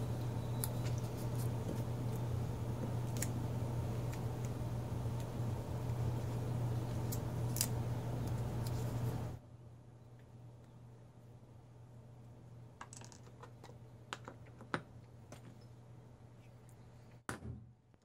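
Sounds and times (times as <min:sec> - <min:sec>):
steady low hum: 0:00.0 - 0:12.8.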